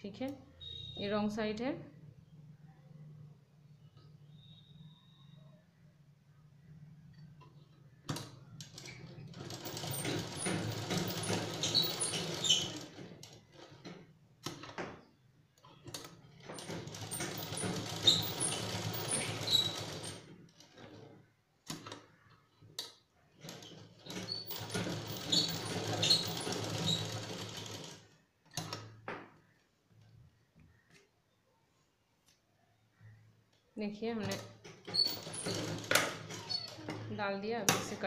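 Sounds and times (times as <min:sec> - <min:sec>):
sewing machine stitching: 0:07.4 - 0:14.8, 0:15.7 - 0:22.0, 0:23.3 - 0:28.9, 0:34.2 - 0:38.0.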